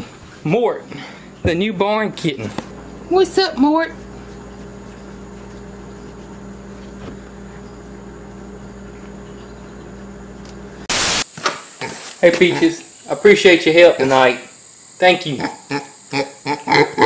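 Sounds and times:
electrical hum with hiss: 0:00.0 - 0:17.0
sharp burst of noise: 0:10.8 - 0:11.4.

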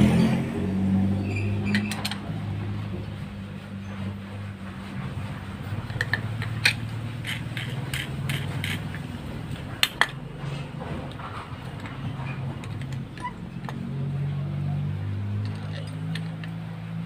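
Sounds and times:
light metal clicks and clinks: 0:15.4 - 0:16.6.

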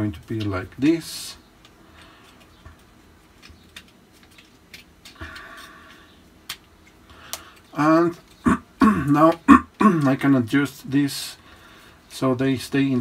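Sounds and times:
plastic parts clicking and rubbing: 0:01.6 - 0:08.4.

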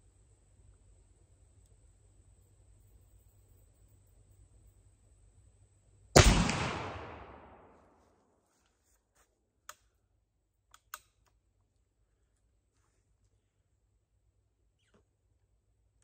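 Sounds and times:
rifle shot: 0:06.2 - 0:08.0
light clicks of rifle handling: 0:09.6 - 0:10.0, 0:10.6 - 0:11.7.

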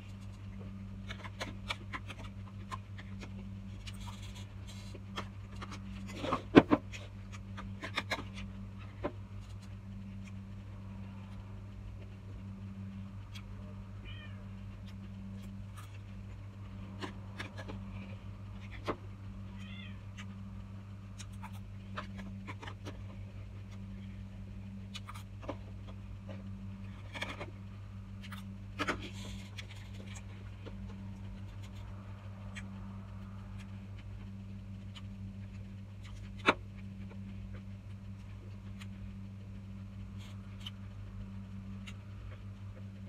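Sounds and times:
low electrical hum: 0:00.0 - 0:43.0
cat meowing: 0:14.0 - 0:14.6, 0:19.5 - 0:20.0.

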